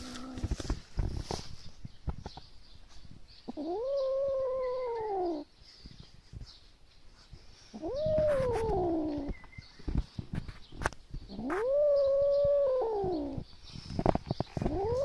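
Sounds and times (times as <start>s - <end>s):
kitten growling and yowling: 3.5s - 5.4s, 7.7s - 9.3s, 11.3s - 13.4s, 14.6s - 15.0s.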